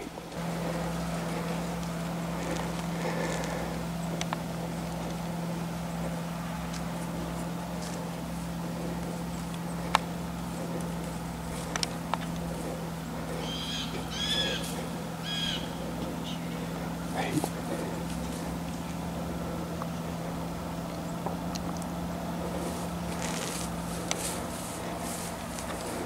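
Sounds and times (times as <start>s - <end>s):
steady low hum: 0.0s - 26.0s
bird chirping: 3.7s - 19.0s
footsteps snapping dry grass: 21.0s - 26.0s.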